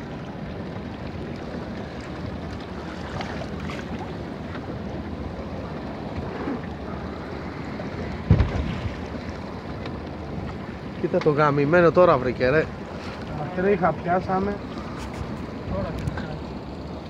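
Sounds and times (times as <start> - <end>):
water washing against boat: 0.0 - 17.0
wind buffeting microphone: 0.0 - 17.0
dull thump: 8.2 - 8.9.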